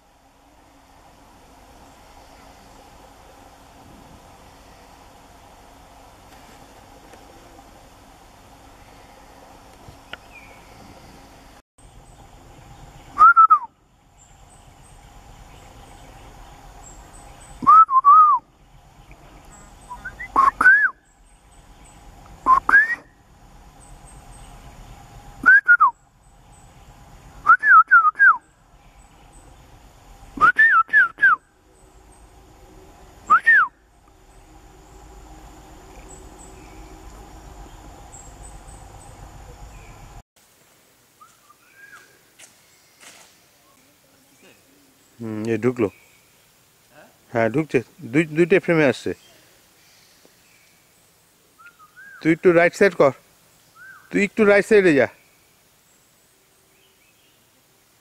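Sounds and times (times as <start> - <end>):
animal calling with short whistles: 13.2 - 13.8, 17.6 - 18.4, 19.8 - 21.1, 22.4 - 23.2, 53.8 - 54.1.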